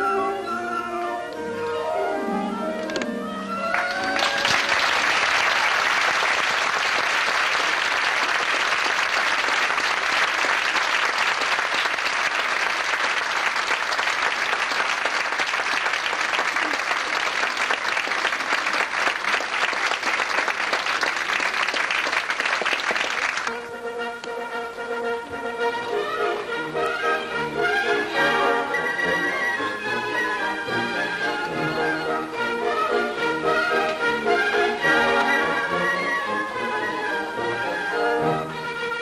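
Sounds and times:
music: 0.0 - 6.3, 23.5 - 39.0
audience applauding: 3.7 - 23.5.

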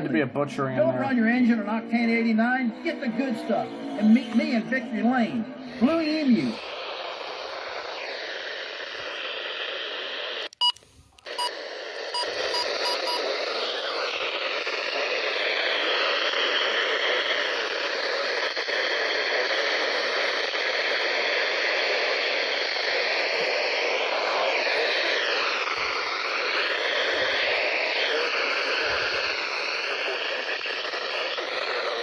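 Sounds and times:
radio static hiss: 0.0 - 32.0
short beeps: 10.6 - 13.2.

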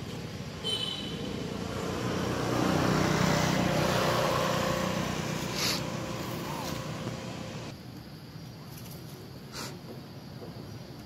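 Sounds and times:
vehicle engine passing by: 1.3 - 7.7.

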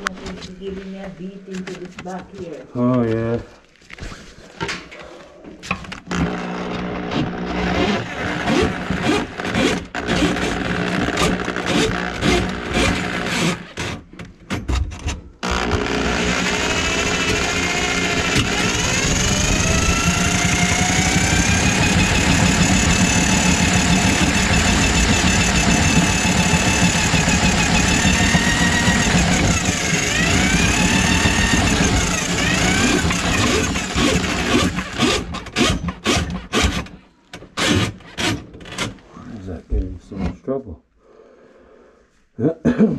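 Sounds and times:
electric drain auger whining: 5.9 - 14.0, 15.4 - 37.0.

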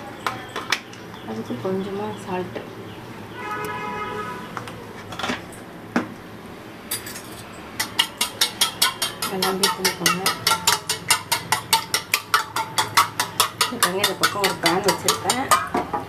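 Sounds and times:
spoon clinking in metal bowl: 6.9 - 15.8.

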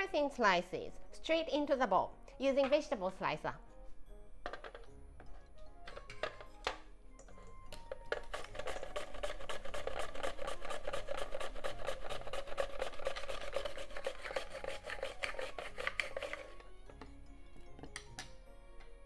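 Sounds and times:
onion rasping on mandoline slicer: 8.3 - 16.5.

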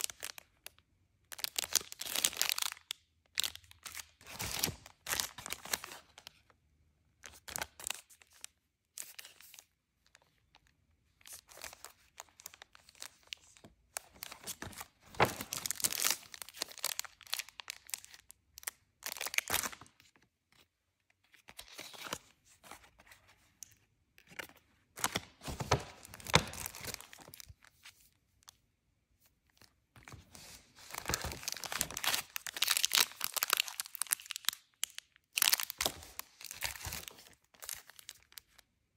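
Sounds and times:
plastic packaging crinkling and tearing: 0.0 - 6.3, 11.3 - 19.9, 30.3 - 38.6.

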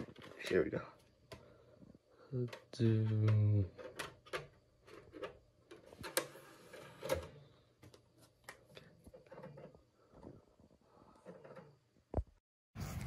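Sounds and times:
disc player whirring: 5.2 - 7.6.

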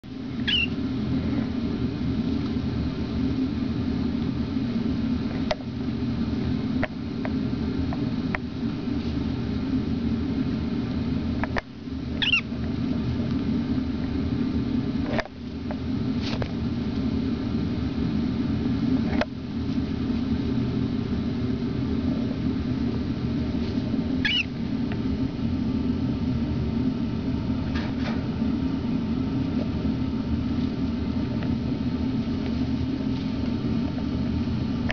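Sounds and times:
air conditioner humming: 0.0 - 34.9
cockatiel chirp: 0.4 - 0.8, 12.2 - 12.5, 24.2 - 24.5.

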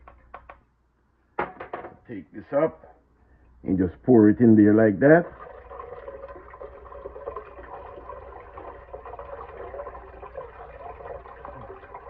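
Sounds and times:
juice pouring and splashing: 5.0 - 12.0.

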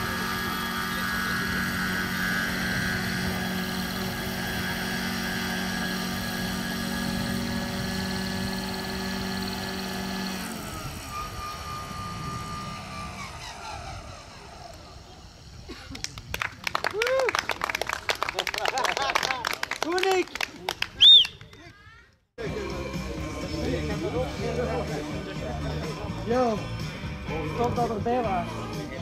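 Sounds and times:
model helicopter motor whine: 0.0 - 15.7.

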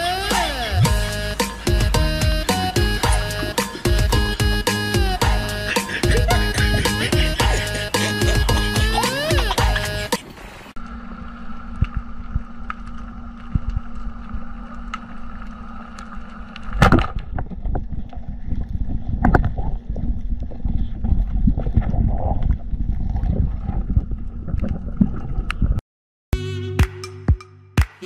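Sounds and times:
underwater low hum with tones: 10.8 - 25.8
underwater low rumble: 10.8 - 25.8.

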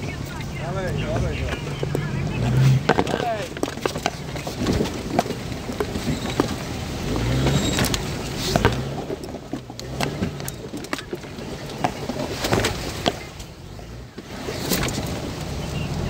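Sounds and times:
engine running low: 0.0 - 16.0
knocks and clicks over rocks: 0.9 - 13.6.

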